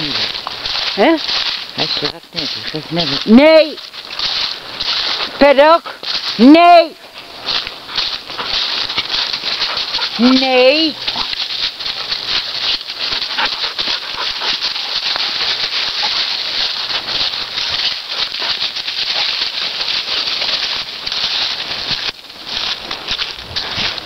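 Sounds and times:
dry leaves crunching underfoot: 0:00.0 - 0:24.0.

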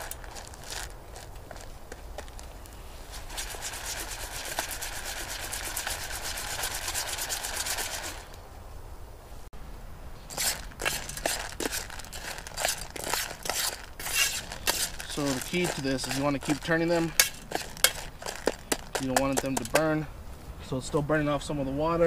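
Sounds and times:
nuts rattling in a metal pan: 0:10.4 - 0:19.8.

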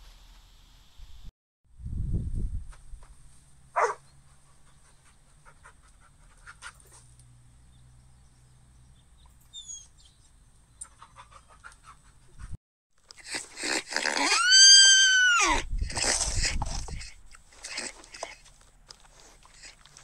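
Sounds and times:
dog barking: 0:03.7 - 0:04.1.

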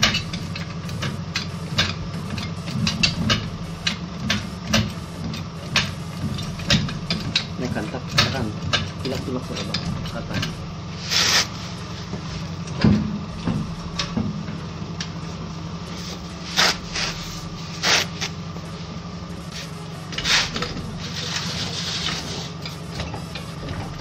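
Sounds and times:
steady low hum: 0:00.0 - 0:24.0
scraping strokes: 0:11.0 - 0:11.8, 0:15.9 - 0:18.4, 0:19.5 - 0:22.6.

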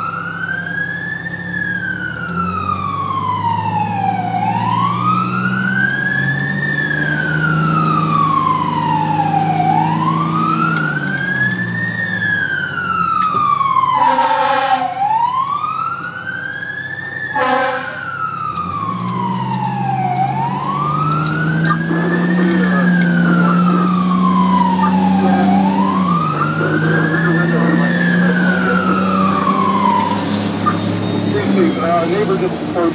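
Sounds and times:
siren wailing: 0:00.0 - 0:32.9
truck engine drone: 0:00.0 - 0:32.9
air horn blasts: 0:14.0 - 0:15.0, 0:17.3 - 0:18.1.

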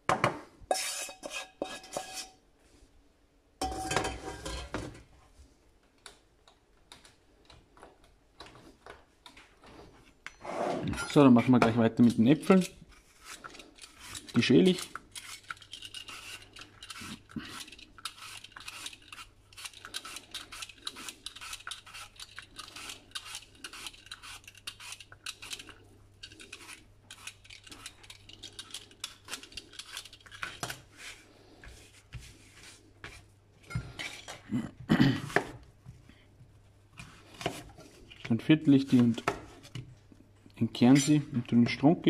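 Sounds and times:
peeler scraping apple skin: 0:12.0 - 0:31.3
knife cutting apple: 0:12.1 - 0:25.7.

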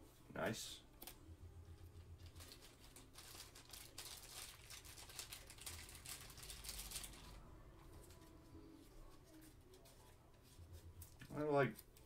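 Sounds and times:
cards and plastic wrapper rustling: 0:01.8 - 0:08.5.

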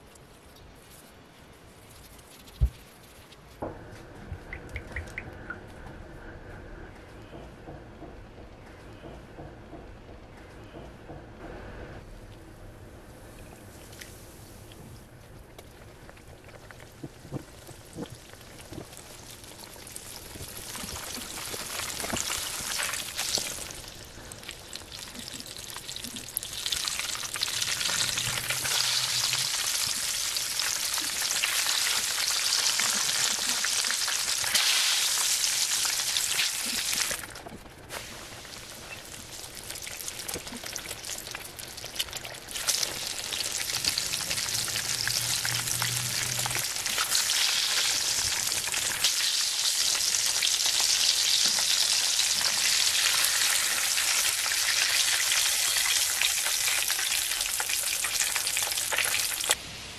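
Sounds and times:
chicken sizzling in hot oil: 0:16.5 - 0:59.6.

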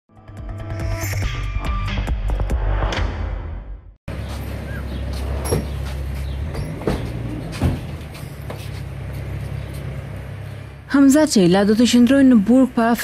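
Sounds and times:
vehicle engine humming: 0:04.1 - 0:13.0.

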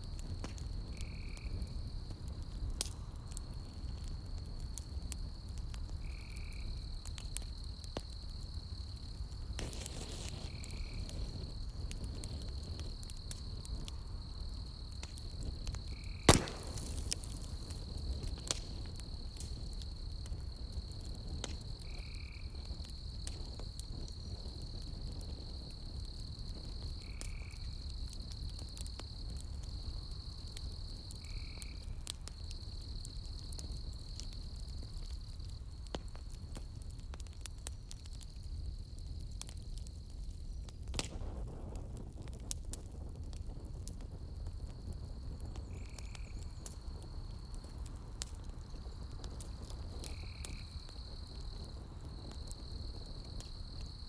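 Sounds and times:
campfire crackling and popping: 0:00.0 - 0:54.0
high insect trill: 0:06.0 - 0:28.1, 0:29.0 - 0:35.7, 0:44.2 - 0:47.7, 0:48.8 - 0:54.0.

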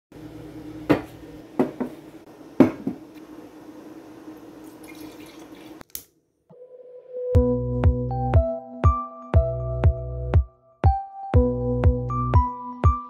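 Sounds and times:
wine pouring into glass: 0:04.6 - 0:05.8.

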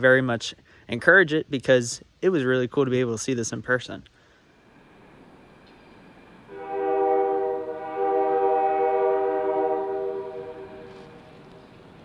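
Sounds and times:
locomotive air horn blasts: 0:06.5 - 0:11.5.

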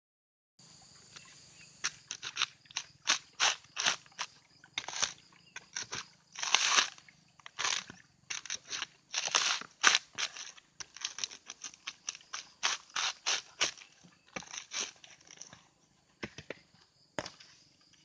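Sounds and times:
coconut husk fibre ripping: 0:02.1 - 0:15.0.

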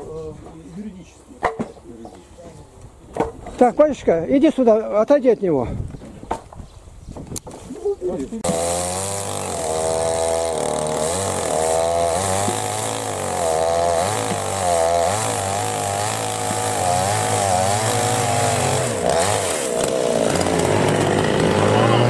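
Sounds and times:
chainsaw cutting log: 0:08.4 - 0:22.0.

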